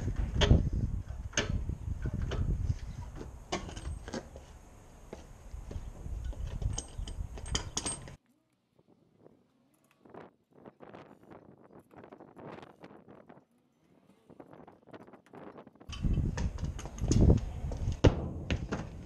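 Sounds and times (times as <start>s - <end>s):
hand tools clicking and clanking: 0.1s - 4.4s, 5.8s - 8.2s.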